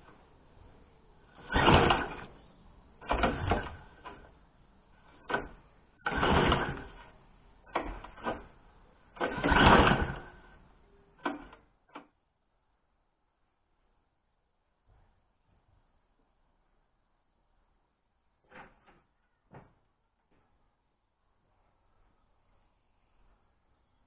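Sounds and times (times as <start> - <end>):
lawn mower recoil starter pulls: 1.3 - 2.4, 3.0 - 4.3, 5.1 - 10.6.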